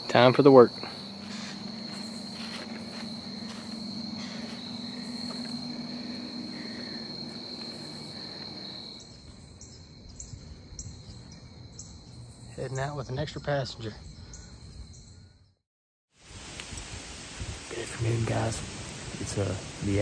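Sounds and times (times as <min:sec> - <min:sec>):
insects trilling: 0:00.0 - 0:15.6, 0:16.2 - 0:20.0
low hum: 0:00.8 - 0:12.4.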